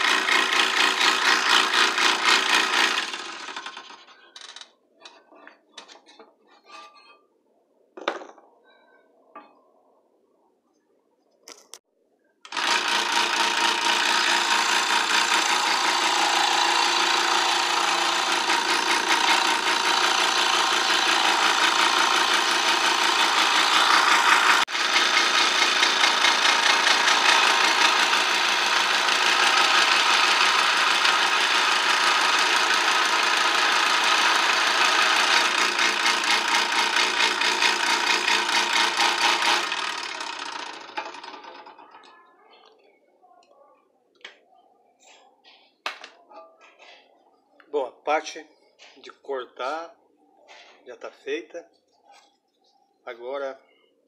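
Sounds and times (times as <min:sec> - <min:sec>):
scroll saw cutting wood: 0:00.0 - 0:04.1, 0:12.5 - 0:41.5.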